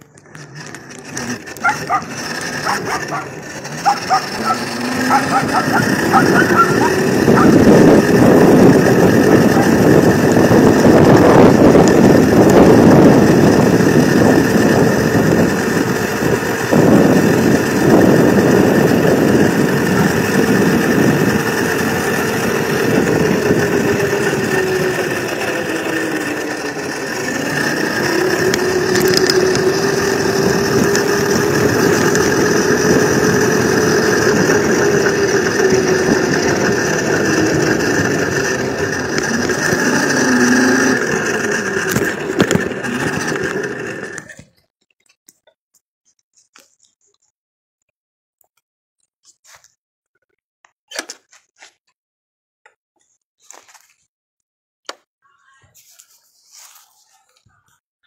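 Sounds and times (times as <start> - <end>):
electric scooter motor whine: 0.0 - 44.5
rushing wind and road noise: 1.3 - 44.2.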